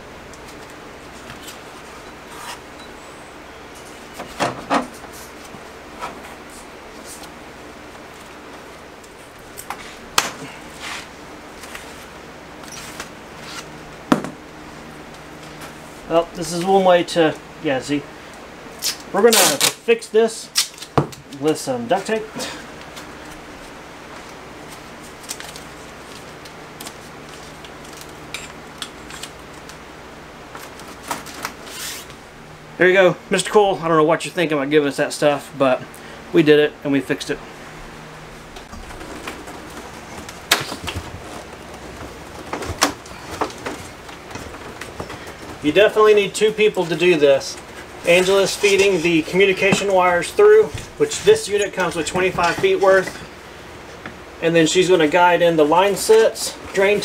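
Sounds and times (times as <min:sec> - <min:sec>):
faint steady hum: 0:00.0 - 0:57.0
tape rubbing and handling: 0:00.3 - 0:02.7, 0:10.7 - 0:13.8, 0:18.8 - 0:19.8, 0:20.5 - 0:21.6, 0:22.9 - 0:29.8, 0:30.5 - 0:32.2
duct tape ripping off roll: 0:18.8 - 0:19.8, 0:20.5 - 0:21.0.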